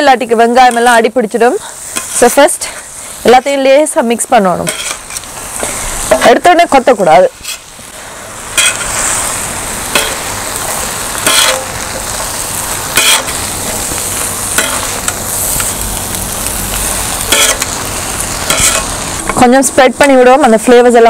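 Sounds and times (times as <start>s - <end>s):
food sizzling on griddle: 0.0s - 21.0s
metal blades clinking on pan: 11.2s - 11.7s, 14.5s - 15.7s, 17.3s - 17.8s, 18.5s - 18.9s.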